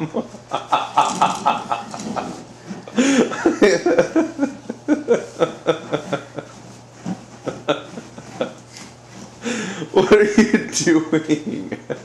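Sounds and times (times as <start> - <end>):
person chuckling: 0.0 - 8.8, 11.6 - 12.0.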